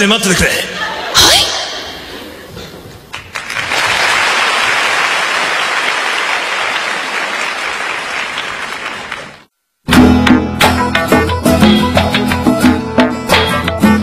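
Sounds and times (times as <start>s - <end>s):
audience applauding: 3.1s - 9.5s.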